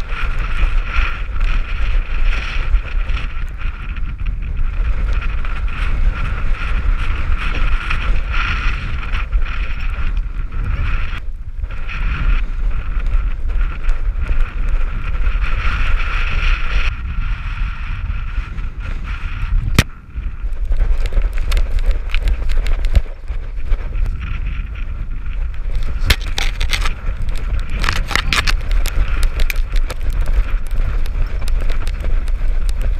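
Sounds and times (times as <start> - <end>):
crackles: 0.0 - 32.9
wind buffeting microphone: 0.0 - 32.9.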